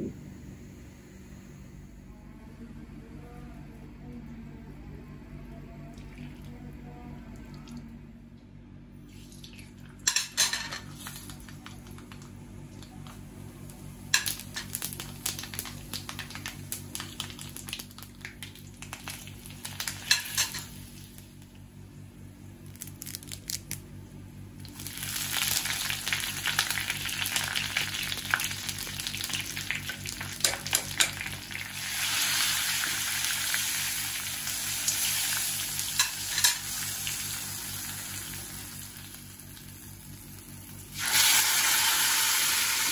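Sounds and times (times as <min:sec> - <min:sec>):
seeds spluttering in hot oil: 0:14.1 - 0:21.5, 0:22.6 - 0:23.8, 0:24.6 - 0:42.9.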